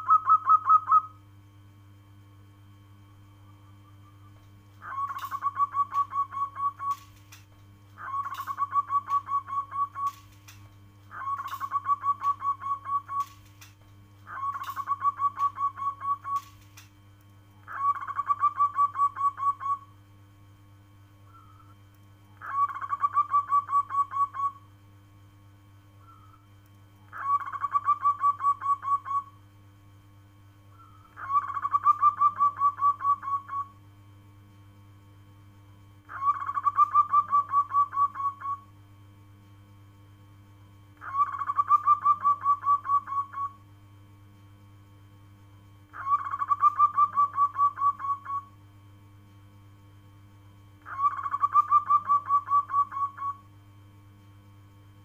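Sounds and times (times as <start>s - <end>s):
dove cooing: 0.0s - 1.2s, 4.8s - 7.1s, 8.0s - 10.2s, 11.1s - 13.4s, 14.3s - 16.5s, 17.7s - 19.9s, 22.4s - 24.6s, 27.1s - 29.3s, 30.8s - 33.7s, 36.1s - 38.7s, 41.0s - 43.6s, 46.0s - 48.5s, 50.9s - 53.4s.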